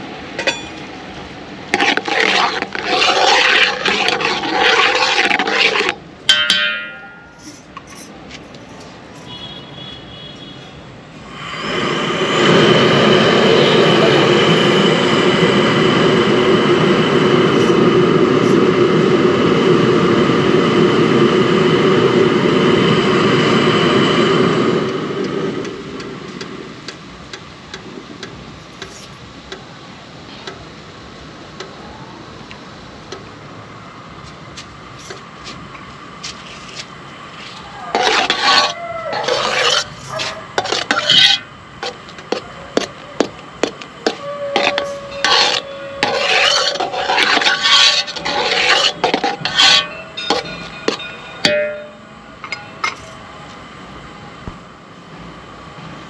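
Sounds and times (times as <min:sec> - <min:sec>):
tea simmering and bubbling: 0:01.6 - 0:06.0, 0:11.2 - 0:19.2, 0:43.2 - 0:51.0.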